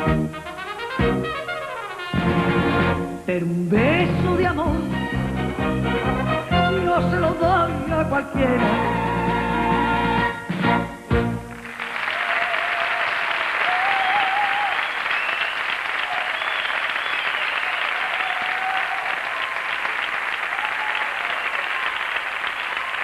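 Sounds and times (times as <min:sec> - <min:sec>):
audience applauding: 0:11.4 - 0:23.0.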